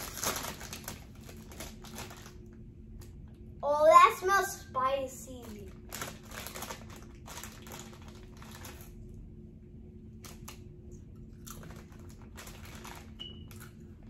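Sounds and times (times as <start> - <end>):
foil chip bag crinkling: 0.0 - 2.6, 5.3 - 9.1, 10.2 - 14.0.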